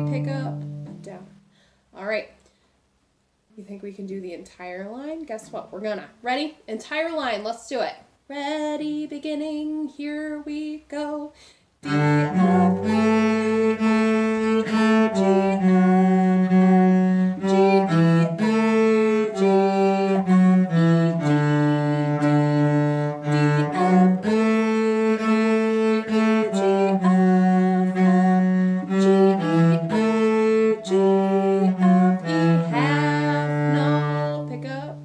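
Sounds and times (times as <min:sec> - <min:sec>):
cello playing slow melody: 0:00.0 - 0:01.4, 0:11.8 - 0:35.0.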